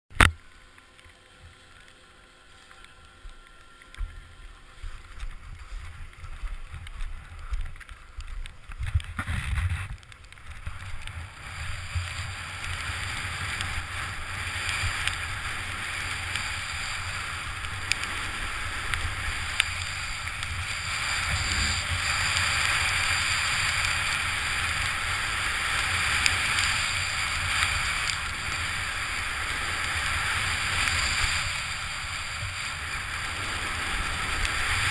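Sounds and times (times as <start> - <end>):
skis hissing through snow: 1.4 - 8.1, 9.2 - 34.9
wind rushing over microphone: 8.5 - 34.9.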